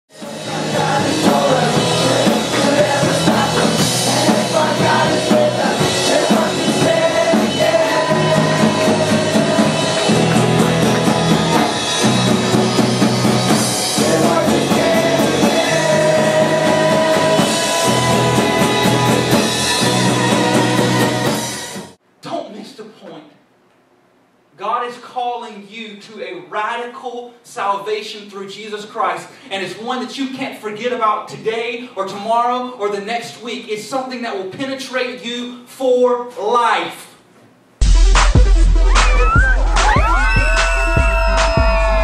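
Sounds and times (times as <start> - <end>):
rock band with drums: 0.1 - 22.0, 37.8 - 42.0
person singing: 0.2 - 12.2, 13.8 - 21.6.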